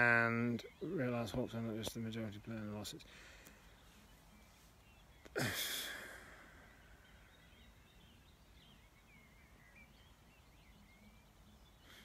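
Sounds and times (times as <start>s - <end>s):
man sighing heavily: 5.3s - 7.4s.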